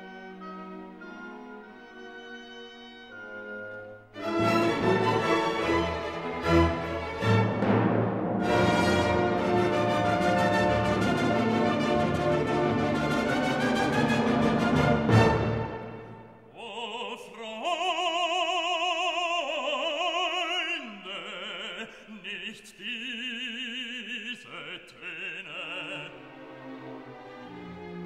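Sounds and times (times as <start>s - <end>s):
orchestral accompaniment: 0.0s - 16.5s, 25.7s - 28.0s
orchestral chord: 4.2s - 16.3s
operatic voice singing: 16.5s - 26.5s.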